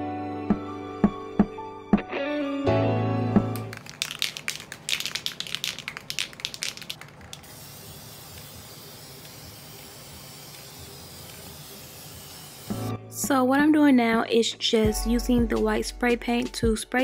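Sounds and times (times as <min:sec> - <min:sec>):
spray can rattling: 0:03.5 - 0:12.9
spray paint hissing: 0:03.6 - 0:12.9.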